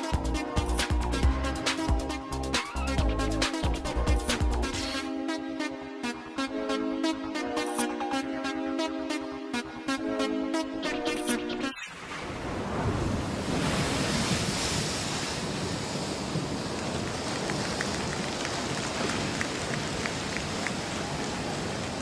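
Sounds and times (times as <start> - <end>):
audience applause: 16.8 - 22.0.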